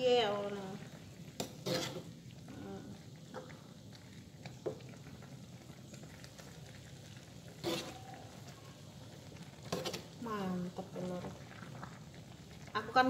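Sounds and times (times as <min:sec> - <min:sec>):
soup simmering: 0:00.0 - 0:13.0
metal ladle scraping a wok: 0:01.4 - 0:02.2, 0:07.6 - 0:08.1, 0:09.6 - 0:10.2.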